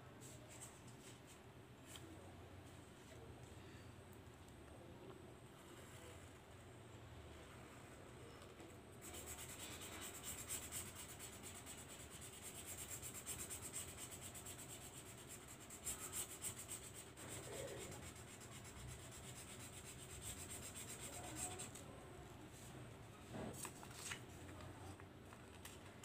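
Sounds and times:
marker scratching on paper: 9.0 - 21.8.

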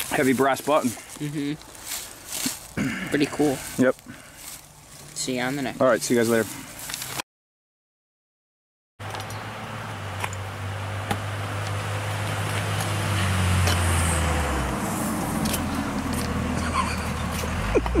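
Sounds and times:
car passing: 9.1 - 18.0.

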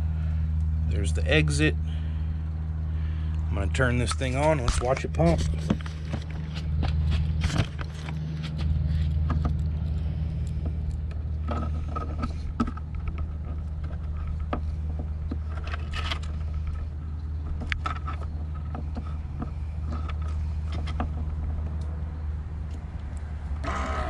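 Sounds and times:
electric water pump humming: 23.4 - 24.0.

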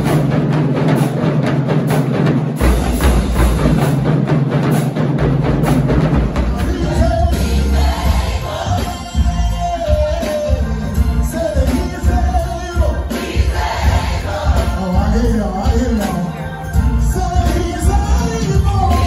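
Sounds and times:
fast drum beat: 0.0 - 19.0
live band music: 0.0 - 19.0.

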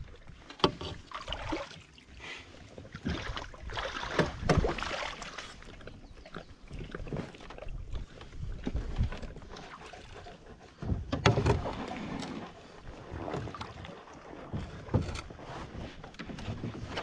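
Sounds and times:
paddle strokes: 0.0 - 17.0
water sloshing and splashing: 0.0 - 17.0
hollow knocks against canoe: 4.0 - 5.0, 10.8 - 12.3.

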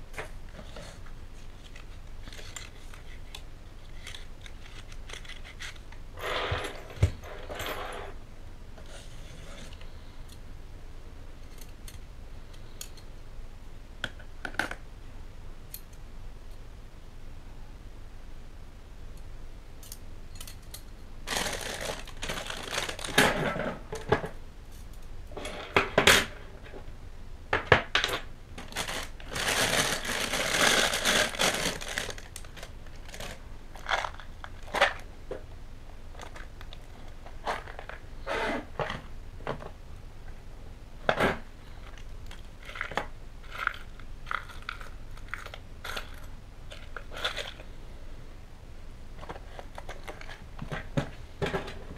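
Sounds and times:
plastic wrapping crinkling: 21.2 - 23.4, 28.6 - 35.1.

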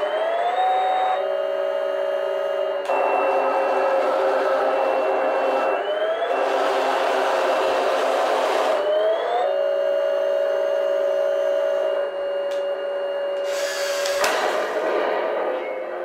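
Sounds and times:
small motor whirring: 13.4 - 14.3
hiss ending in sharp crack: 13.8 - 15.1.

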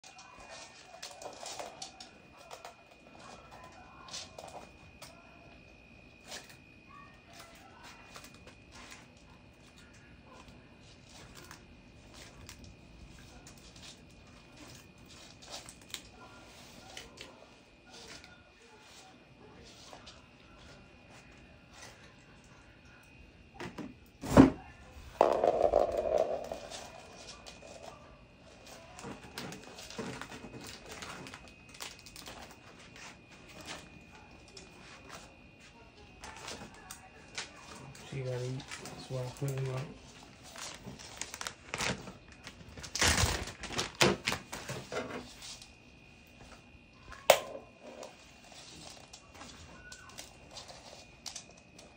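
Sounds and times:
taps and clicks on hardwood floor: 25.2 - 26.9
plastic rustling: 40.0 - 45.4.

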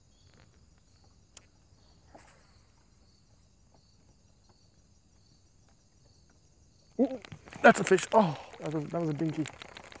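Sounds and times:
insects chirping: 0.0 - 10.0.

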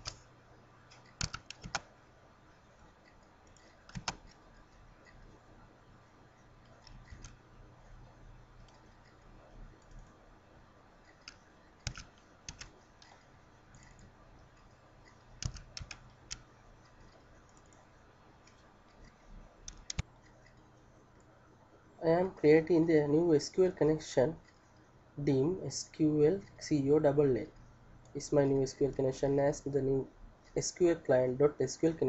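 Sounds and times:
keyboard and mouse clicks: 0.0 - 0.3, 0.9 - 1.9, 3.0 - 5.4, 6.6 - 7.4, 8.6 - 10.2, 11.0 - 21.3
low steady hum: 0.0 - 32.0.

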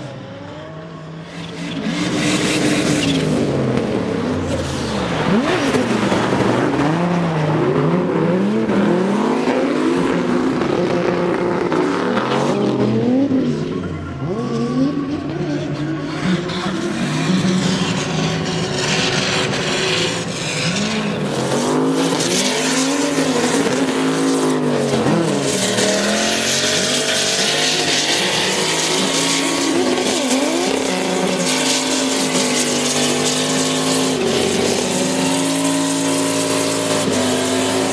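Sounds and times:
car engine revving: 0.0 - 37.9.

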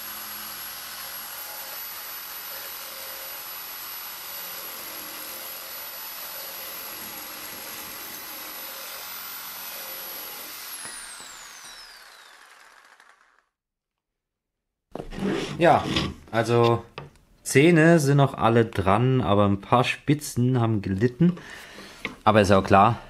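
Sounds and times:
reciprocating saw cutting steel: 0.0 - 13.4.

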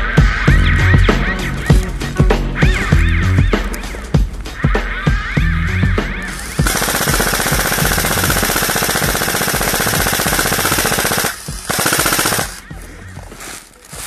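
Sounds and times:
airsoft rifle rapid bursts: 6.3 - 12.7.

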